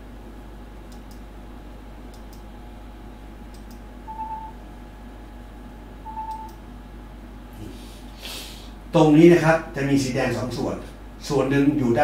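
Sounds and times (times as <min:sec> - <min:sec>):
steady low hum: 0:00.0 - 0:12.0
short electronic beeps: 0:04.1 - 0:04.5, 0:06.1 - 0:06.5.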